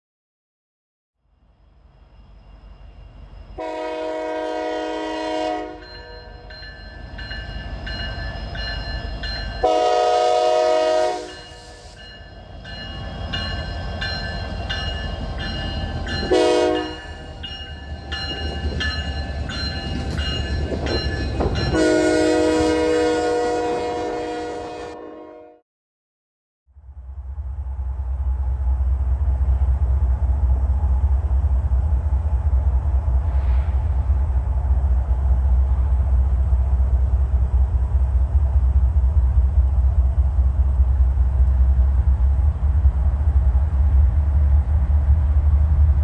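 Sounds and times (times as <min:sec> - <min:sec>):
diesel train rumble: 0:01.5 - 0:24.9, 0:26.8 - 0:46.0
locomotive horn blasts: 0:03.6 - 0:06.4, 0:09.6 - 0:12.0, 0:16.2 - 0:17.4, 0:21.7 - 0:25.6
bell ringing: 0:05.8 - 0:09.7, 0:11.3 - 0:21.8.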